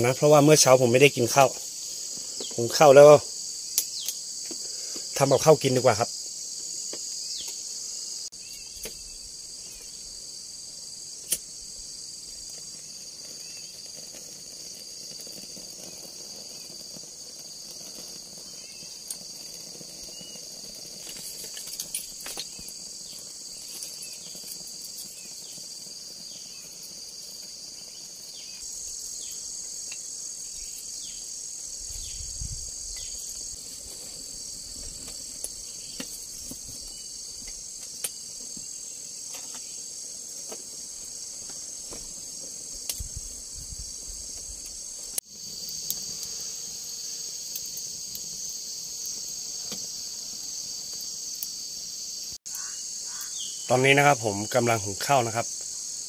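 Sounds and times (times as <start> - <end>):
insect chorus: 0.0 - 56.0.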